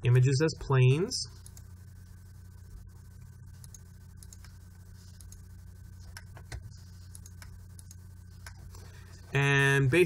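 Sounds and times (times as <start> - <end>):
low electrical hum: 0.0 - 10.0
computer mouse clicks: 3.6 - 8.8.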